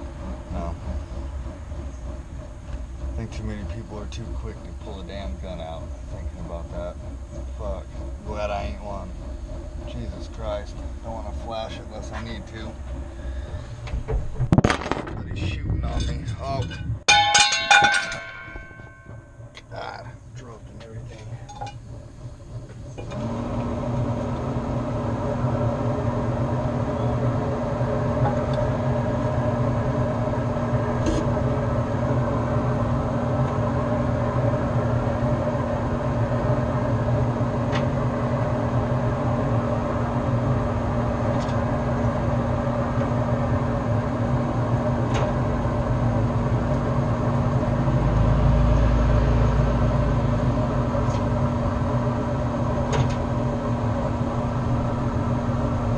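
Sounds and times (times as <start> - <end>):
low drone: 0.0 - 55.9
steady mechanical hum: 0.0 - 55.9.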